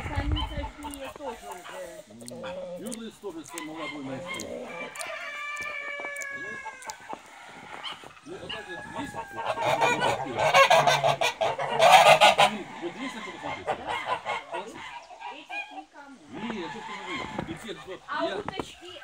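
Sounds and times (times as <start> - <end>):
geese honking: 0.3 - 15.9.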